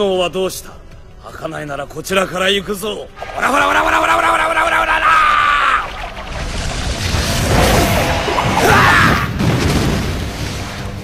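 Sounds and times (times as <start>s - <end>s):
background music: 0.0s - 11.0s
flame bursts with boom: 5.9s - 11.0s.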